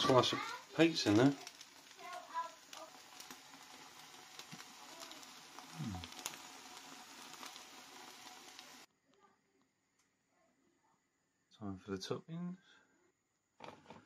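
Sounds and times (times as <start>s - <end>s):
pancake sizzling in oil: 0.0s - 8.9s.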